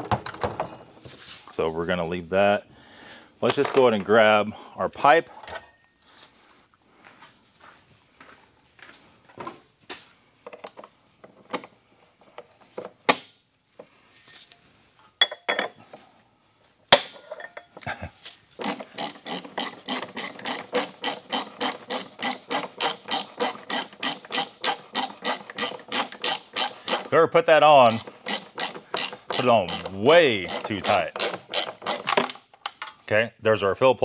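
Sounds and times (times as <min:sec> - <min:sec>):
metal tool clinks and knocks: 0:05.3 - 0:06.0, 0:15.2 - 0:15.8, 0:17.0 - 0:17.9
socket ratchet clicking: 0:18.6 - 0:27.1, 0:27.8 - 0:32.3.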